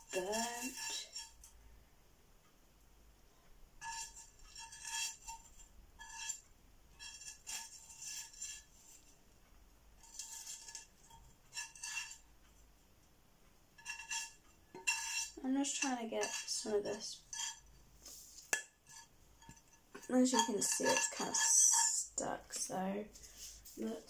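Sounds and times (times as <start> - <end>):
metal utensil scraping a dish: 0.0 - 1.5, 3.8 - 9.2, 10.0 - 12.2, 13.8 - 17.8, 18.4 - 22.6.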